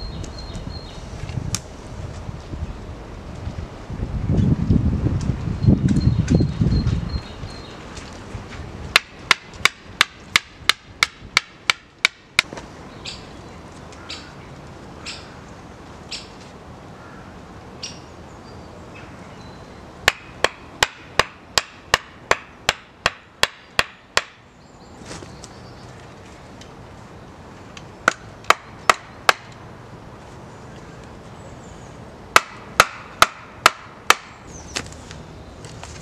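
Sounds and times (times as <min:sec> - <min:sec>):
axe hammering wooden stakes: 0:08.9 - 0:12.6, 0:20.0 - 0:24.4, 0:28.0 - 0:29.5, 0:32.3 - 0:34.4.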